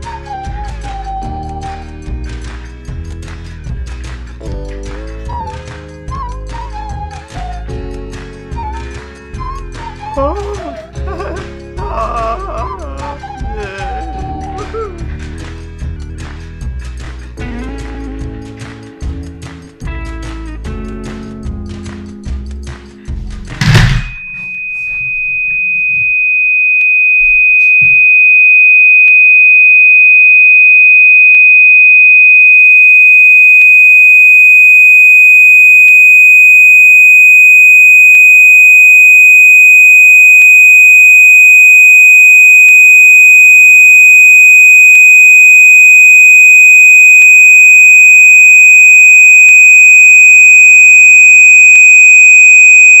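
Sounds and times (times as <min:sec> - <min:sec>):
high-pitched electronic sine tone: 0:00.0 - 0:02.6, 0:13.2 - 0:15.5, 0:23.6 - 0:53.0
fainter higher tone: 0:23.7 - 0:53.0.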